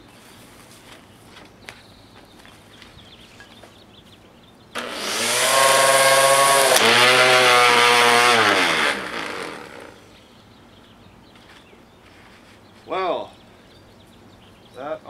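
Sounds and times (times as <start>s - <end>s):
string trimmer whining: 4.7s - 10.2s
sharp crack: 4.8s - 10.0s.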